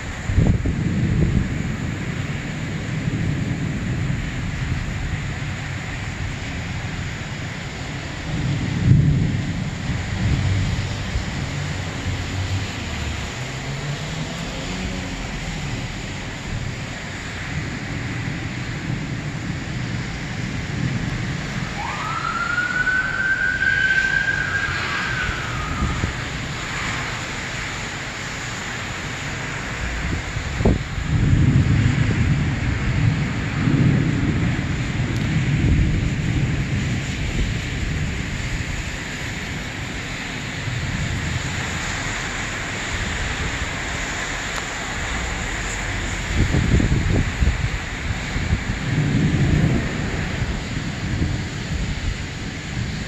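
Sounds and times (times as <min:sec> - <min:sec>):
rain and wind hiss: 0:00.0 - 0:53.0
distant siren wailing: 0:21.2 - 0:27.3.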